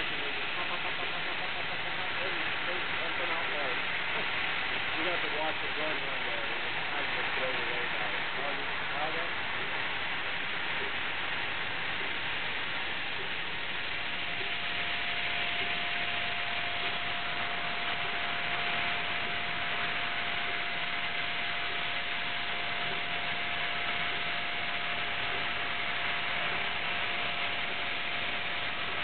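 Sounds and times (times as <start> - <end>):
laser cutter hiss: 0.0 - 29.0
steady tone: 0.0 - 29.0.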